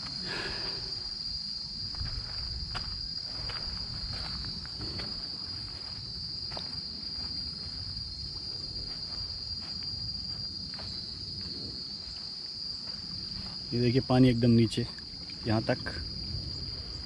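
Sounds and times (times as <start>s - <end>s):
insects droning: 0.0s - 17.0s.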